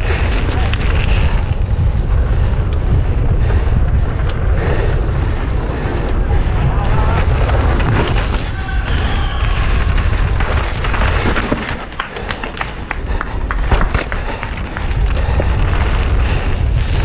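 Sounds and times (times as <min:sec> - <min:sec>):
wind buffeting microphone: 0:00.0 - 0:17.0
bike clattering over rocks: 0:09.8 - 0:16.0.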